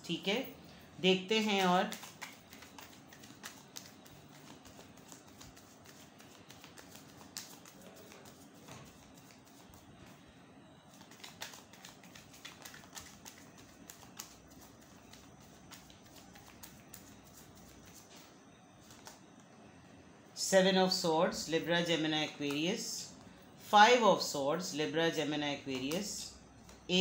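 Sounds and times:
cards being shuffled: 1.4 - 9.8, 10.9 - 19.2.

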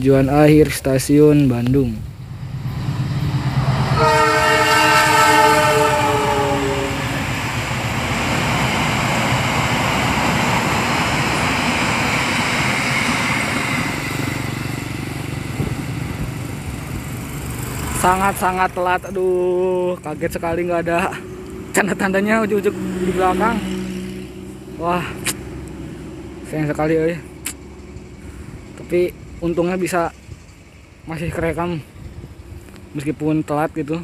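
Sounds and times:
rumble of passing train coaches: 0.0 - 34.0
train horn: 3.9 - 7.4.

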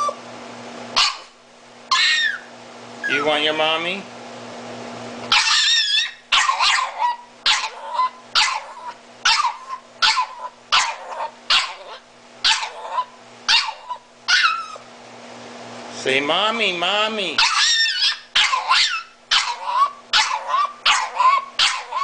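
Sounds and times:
dog yelping: 0.0 - 0.2, 1.0 - 3.4, 5.3 - 14.9, 17.4 - 22.0.

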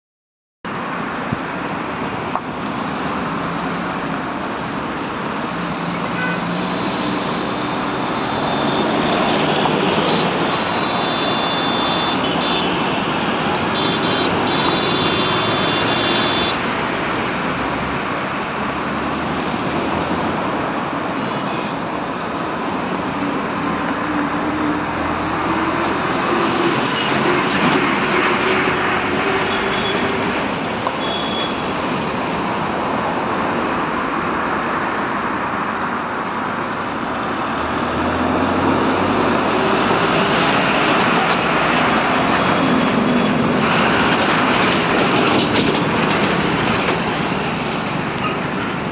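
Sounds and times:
highway traffic noise: 0.6 - 48.9.

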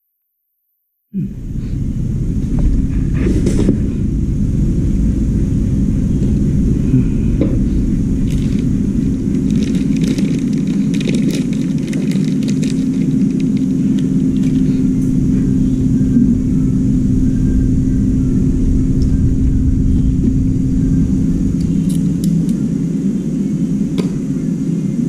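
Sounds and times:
low machine rumble: 1.2 - 25.0
light clicks and rattles: 9.3 - 14.7.

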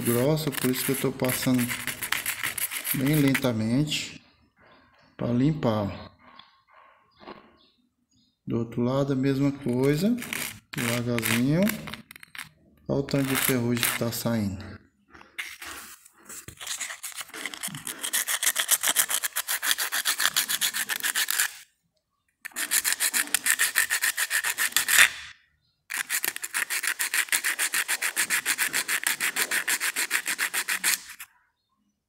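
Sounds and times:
metal scraping on sandpaper: 0.0 - 3.6, 9.5 - 14.2, 15.4 - 21.7, 22.5 - 25.3, 25.9 - 31.3.

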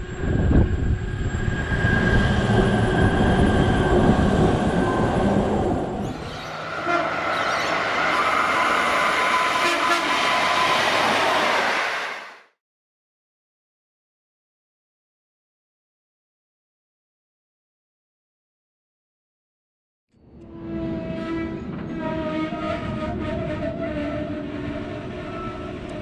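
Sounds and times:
hissy train sound with tones: 0.0 - 12.4, 20.7 - 26.0
train wheels rumbling on track: 0.0 - 12.4, 20.7 - 26.0.

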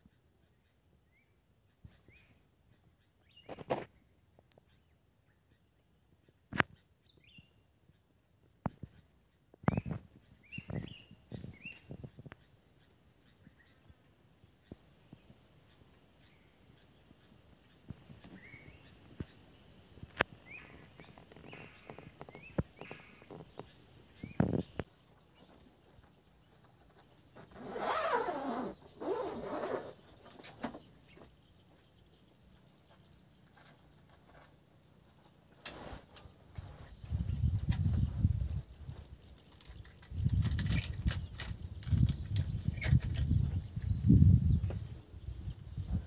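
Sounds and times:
bird chirps: 0.4 - 8.0, 8.8 - 34.0
high-pitched insect drone: 10.7 - 24.9
bag rustling on wooden bench: 26.5 - 30.9.

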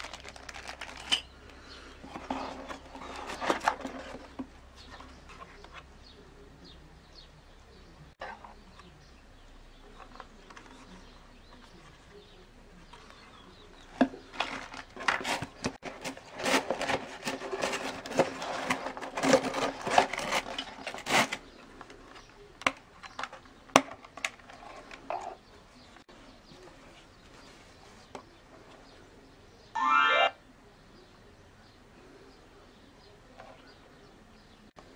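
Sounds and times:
box and plastic case rustling: 0.0 - 1.3, 2.0 - 5.8, 14.0 - 25.3.

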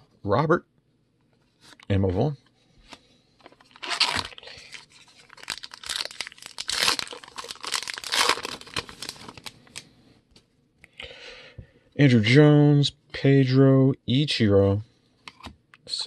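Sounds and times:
foil wrapper tearing and crinkling: 3.7 - 9.8.

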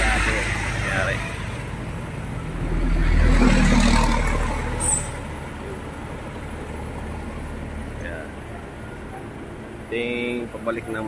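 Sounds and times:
vehicle passing close by: 0.0 - 8.0
distant trucks rumbling: 0.0 - 11.0.

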